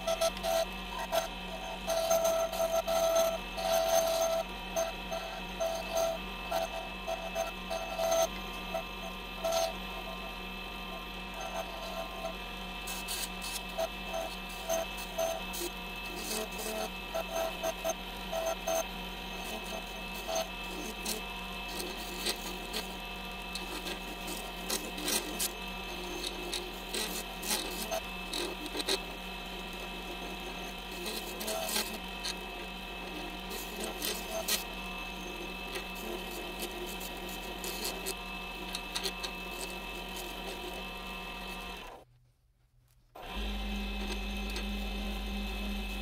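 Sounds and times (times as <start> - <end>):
lathe motor whine: 0.0 - 42.0, 43.2 - 46.0
tool scraping spinning acrylic: 11.3 - 41.9, 43.8 - 46.0.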